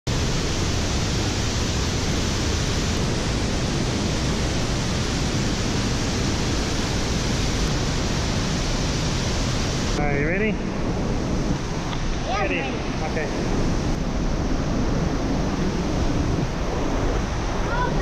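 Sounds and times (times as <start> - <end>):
waterfall rushing: 0.1 - 18.0.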